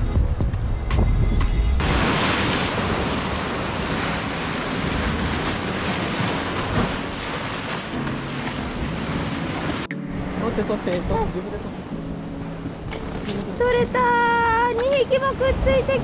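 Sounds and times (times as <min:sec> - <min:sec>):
waves breaking on concrete blocks: 0:01.8 - 0:09.9.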